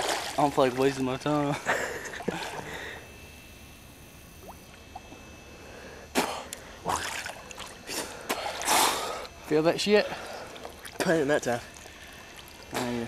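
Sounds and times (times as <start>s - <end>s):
water splashing: 0.0s - 2.7s, 6.9s - 9.1s, 10.2s - 13.0s
low water ambience: 0.0s - 13.0s.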